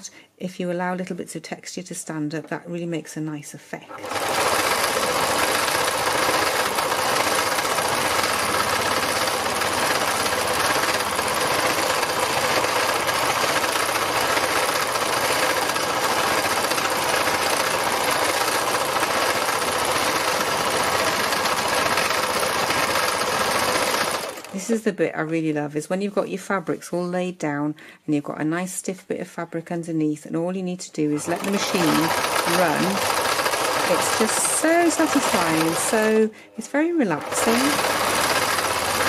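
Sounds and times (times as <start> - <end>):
sewing machine stitching rapidly: 3.9 - 24.7, 31.2 - 36.3, 37.0 - 39.0.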